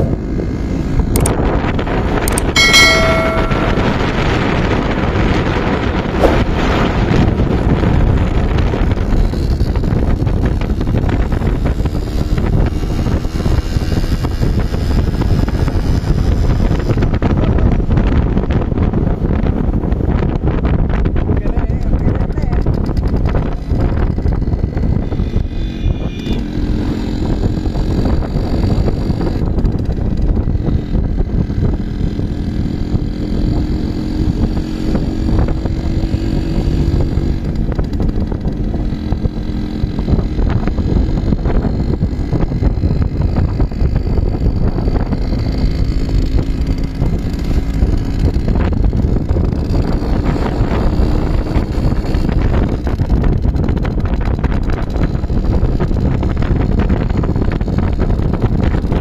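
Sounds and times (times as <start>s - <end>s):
two-stroke motorcycle engine: 0.0s - 59.0s.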